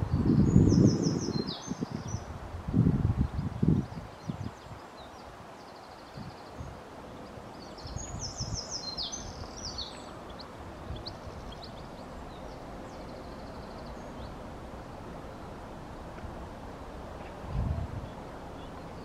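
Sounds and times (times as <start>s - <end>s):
small birds chirping: 0.0s - 2.4s, 3.2s - 15.6s, 16.7s - 19.0s
low outdoor rumble: 9.2s - 19.0s.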